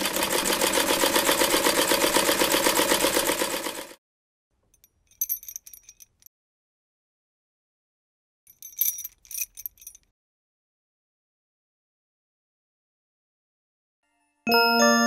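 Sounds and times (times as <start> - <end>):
sewing machine running: 0.0 - 4.0
bangles clinking: 4.7 - 6.3, 8.5 - 10.1.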